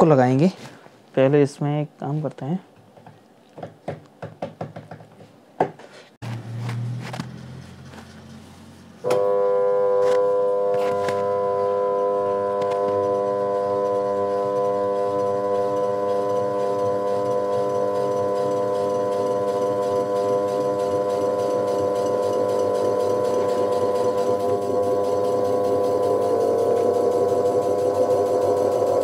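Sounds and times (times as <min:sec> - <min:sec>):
washing machine electrical hum: 0:06.2 - 0:29.0.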